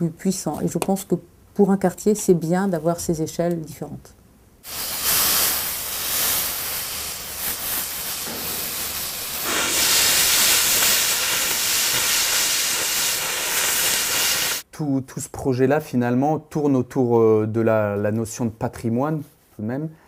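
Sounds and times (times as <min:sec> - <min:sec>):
cutting torch hissing: 0:04.6 - 0:14.6.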